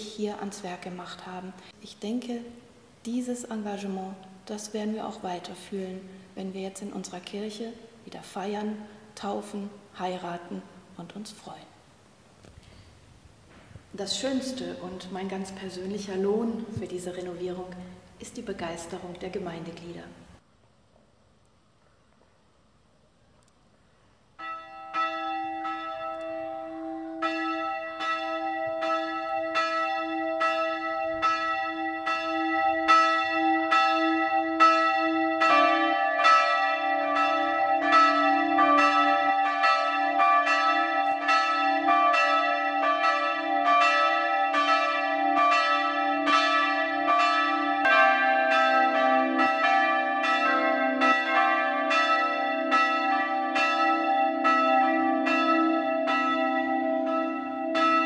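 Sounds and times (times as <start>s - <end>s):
church bells ringing: 24.4s - 58.0s.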